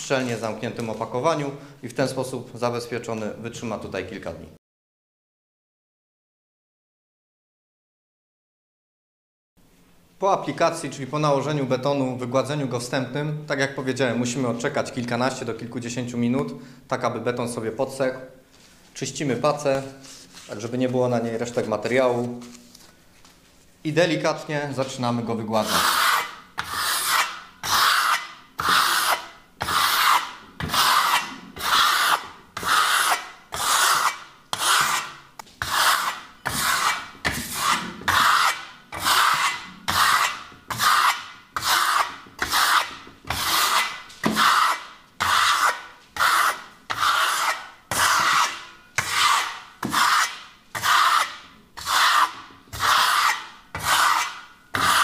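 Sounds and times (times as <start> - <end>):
trowel scraping plaster: 25.6 - 55.0.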